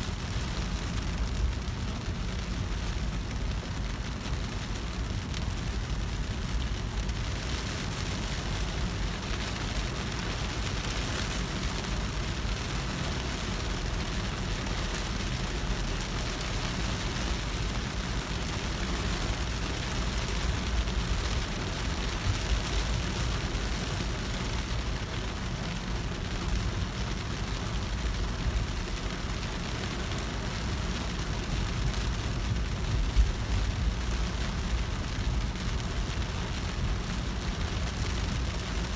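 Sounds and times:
heavy rain drumming on car: 0.0s - 38.9s
road and engine rumble: 0.0s - 38.9s.

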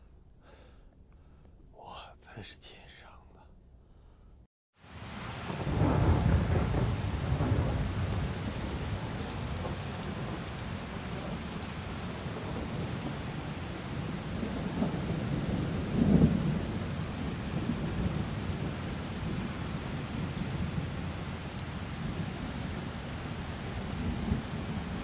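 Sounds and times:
rain hiss: 4.8s - 25.0s
low thunder rumble: 5.1s - 25.0s
thunder roll: 5.3s - 11.4s, 14.0s - 21.1s.

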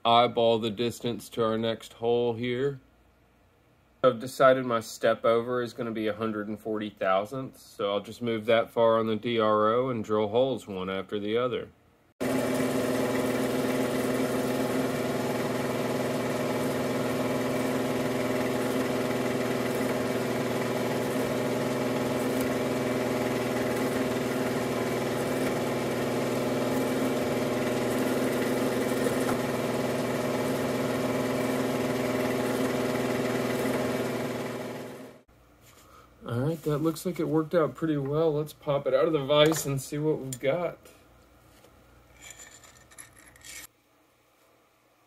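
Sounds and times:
milling machine spindle humming: 12.2s - 35.2s.

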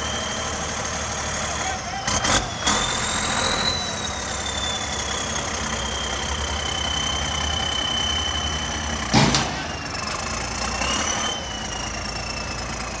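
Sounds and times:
diesel tractor engine under load: 0.0s - 13.0s
turbo whistle: 1.9s - 8.9s.

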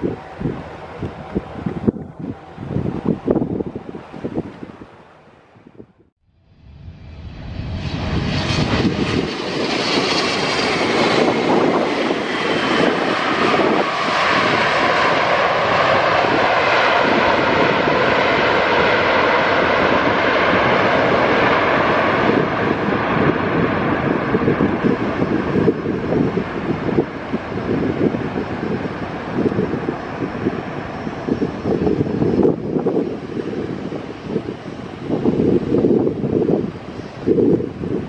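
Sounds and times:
high engine whine: 6.2s - 13.9s
jet engines roaring: 6.3s - 38.0s.

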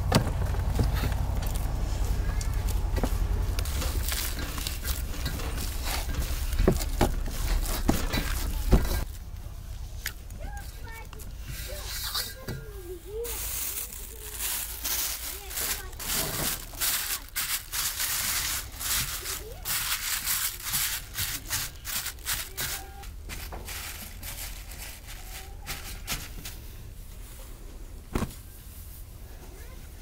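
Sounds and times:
plastic bag crinkling: 2.3s - 9.3s, 13.1s - 26.2s.

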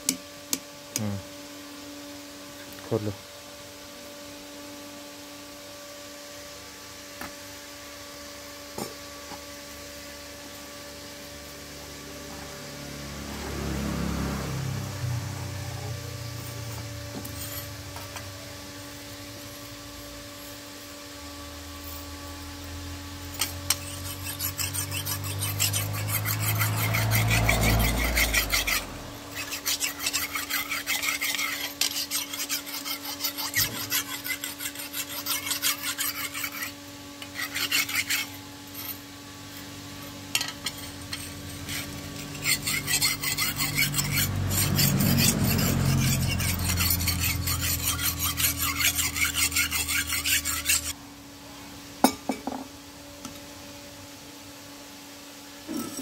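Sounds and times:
sharpening stone scraping steel blade: 16.2s - 18.3s, 23.2s - 51.0s, 55.7s - 56.0s.

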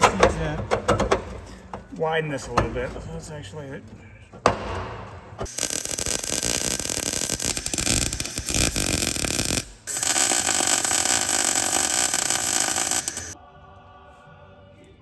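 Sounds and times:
welding arc crackling: 5.4s - 13.4s.

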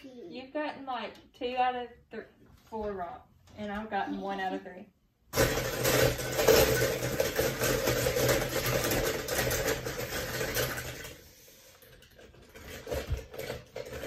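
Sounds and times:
toy cars clattering in plastic bowl: 5.4s - 14.0s.

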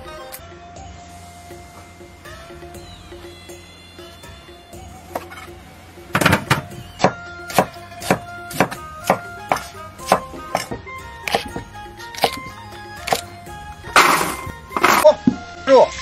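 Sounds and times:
background music: 0.0s - 16.0s
cleaver chopping on wooden block: 6.2s - 13.3s.

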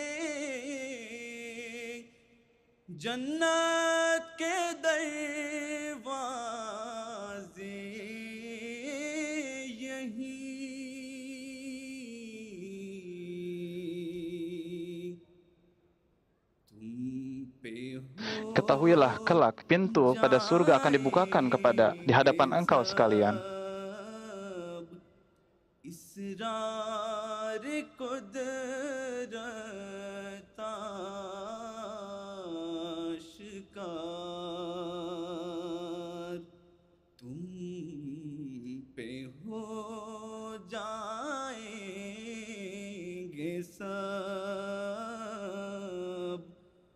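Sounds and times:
man chanting unaccompanied: 17.2s - 25.0s.

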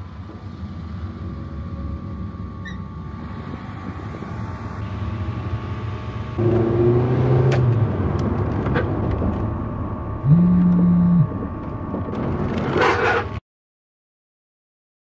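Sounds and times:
car engine and road noise: 0.0s - 13.4s
loud steady low tone: 9.8s - 11.8s.

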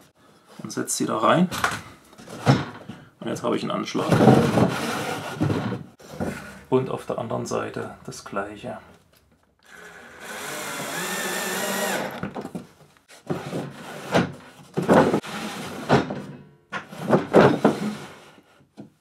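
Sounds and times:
wooden drawer knocking and scraping: 4.0s - 6.6s, 13.3s - 18.1s
cordless drill whining: 9.6s - 12.4s.

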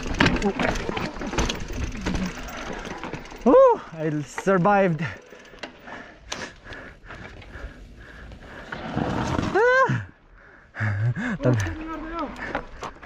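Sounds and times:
scraping rush through dirt: 8.6s - 9.8s
person crying out: 9.5s - 10.1s.

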